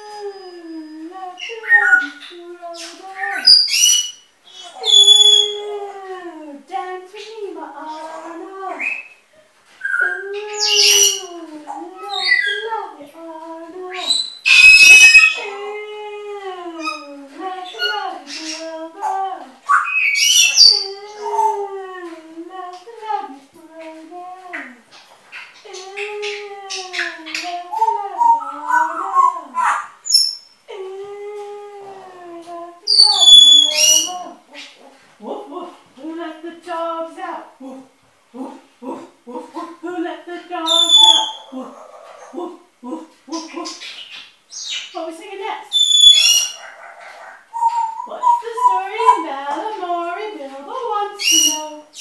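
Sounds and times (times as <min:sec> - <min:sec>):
parrots chattering: 0:01.4 - 0:05.9, 0:07.2 - 0:12.8, 0:13.8 - 0:15.7, 0:16.8 - 0:21.8, 0:24.5 - 0:30.7, 0:32.8 - 0:35.1, 0:40.6 - 0:52.0
parrot screech: 0:14.5 - 0:15.4.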